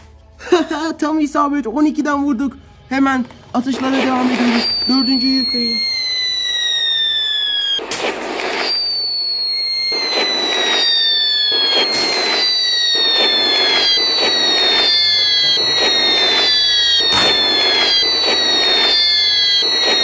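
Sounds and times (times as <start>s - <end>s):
crackling firework bursts: 3.8s - 20.0s
descending firework whistles: 3.8s - 20.0s
sharp firework bangs: 6.5s - 20.0s.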